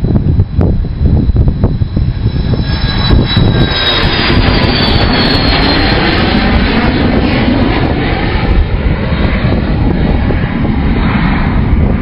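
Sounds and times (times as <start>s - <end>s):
jet engines roaring: 0.0s - 12.0s.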